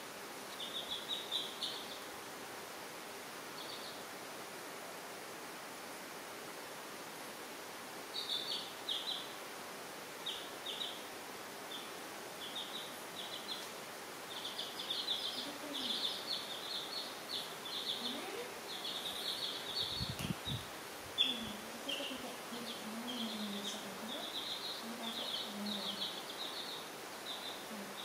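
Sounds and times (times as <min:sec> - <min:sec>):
steady hiss: 0:00.0 - 0:28.0
baby chicks peeping: 0:00.5 - 0:02.2, 0:03.5 - 0:04.1, 0:08.1 - 0:09.4, 0:10.2 - 0:28.0.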